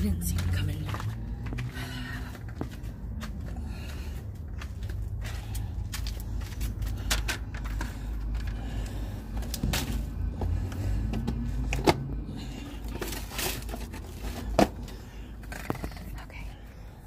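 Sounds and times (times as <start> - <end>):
flip-flop footsteps on sand: 0.1 - 6.0.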